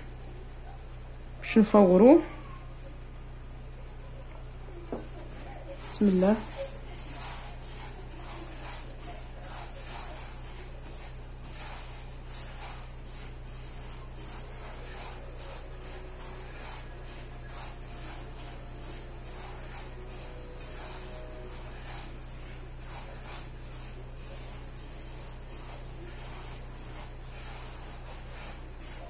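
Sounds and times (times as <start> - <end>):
hand rustling dry grains in bowl: 5.8 - 29.0.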